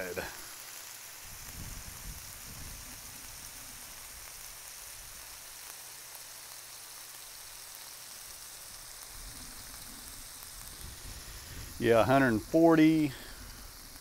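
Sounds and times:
meat sizzling on griddle: 0.0s - 14.0s.

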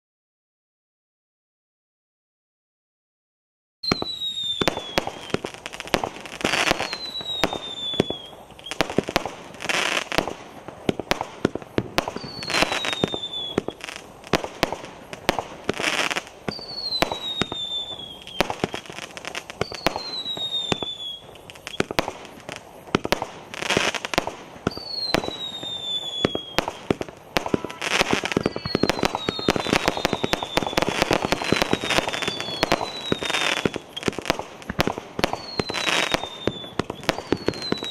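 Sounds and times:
firework whistle falling in pitch: 3.8s - 5.6s, 6.4s - 9.0s, 12.0s - 13.9s, 15.7s - 22.0s, 24.6s - 34.2s, 35.2s - 37.9s
firework bursts: 3.8s - 37.9s
firework crackling: 3.8s - 37.9s.

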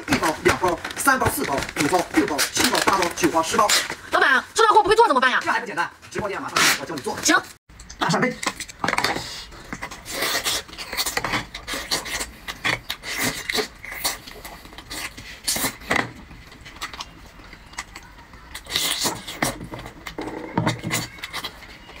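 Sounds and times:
person biting and chewing: 8.4s - 15.9s, 16.5s - 21.6s.

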